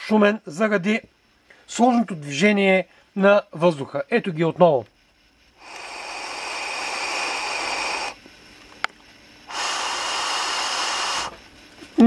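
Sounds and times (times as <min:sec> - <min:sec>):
air hissing through atomizer: 0:05.3 - 0:12.0.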